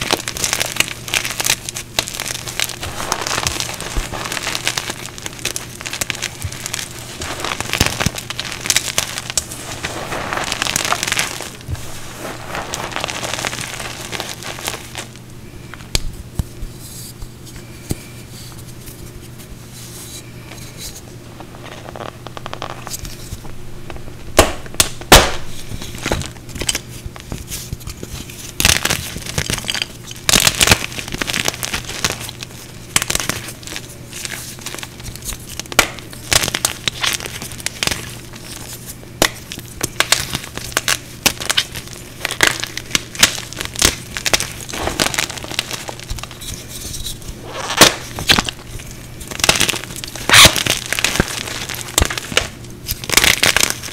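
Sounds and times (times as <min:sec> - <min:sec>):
chalk crumbling and crunching: 0:00.0 - 0:15.2, 0:25.1 - 0:53.9
chalk pieces snapping: 0:49.4 - 0:53.9.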